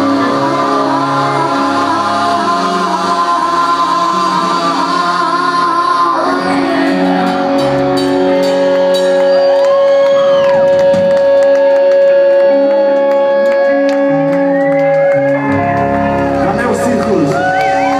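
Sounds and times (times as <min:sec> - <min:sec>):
live rock band sustained note: 0:00.0 - 0:17.9
crowd shouts and whoops: 0:09.1 - 0:11.2, 0:12.5 - 0:16.2, 0:17.1 - 0:17.9.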